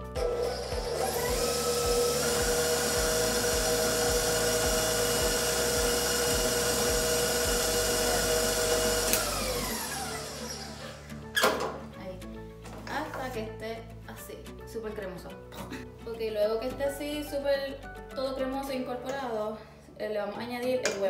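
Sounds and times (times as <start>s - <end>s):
stand mixer motor whine: 0.2s - 10.9s
mixer switch click: 9.0s - 9.4s.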